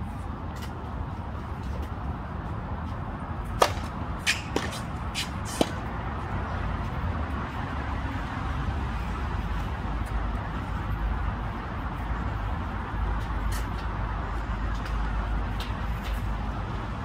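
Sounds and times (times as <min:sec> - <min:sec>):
tennis racket hitting ball: 0:03.6 - 0:05.9.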